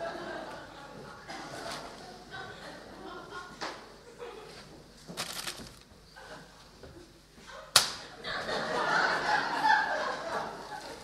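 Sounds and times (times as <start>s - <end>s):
sharp crack: 7.8s - 8.1s.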